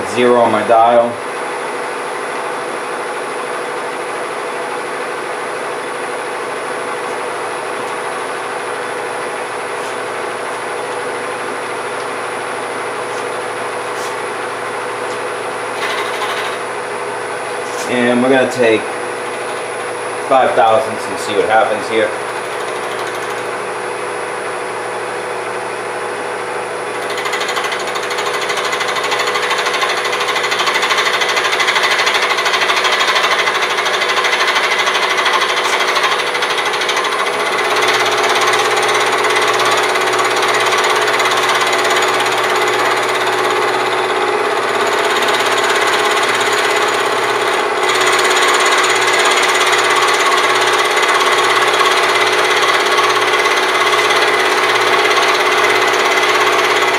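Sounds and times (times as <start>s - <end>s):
milling machine running: 0.0s - 56.9s
milling cutter rattling: 15.7s - 16.6s, 17.6s - 23.6s, 26.9s - 56.9s.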